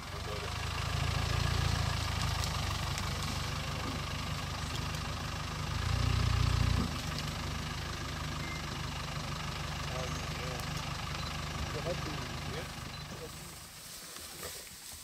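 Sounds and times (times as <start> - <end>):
vehicle engine idling: 0.0 - 15.0.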